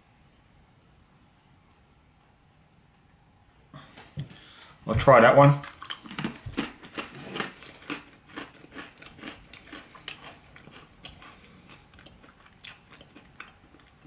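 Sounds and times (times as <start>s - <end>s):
person chewing crunchy pretzel: 5.6s - 14.0s.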